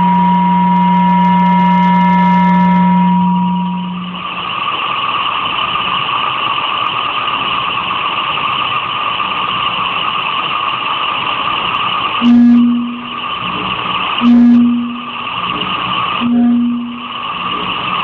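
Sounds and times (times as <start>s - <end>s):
filtered hiss-like electronic noise: 0.0s - 4.3s, 12.2s - 13.5s, 14.2s - 15.4s, 16.2s - 18.0s
low electronic hum: 0.0s - 4.6s, 12.2s - 18.0s.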